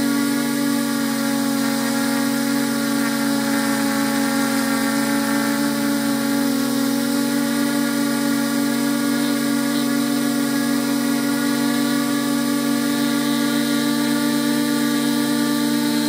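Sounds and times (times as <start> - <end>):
drone motors and propellers whining: 0.0 - 16.0.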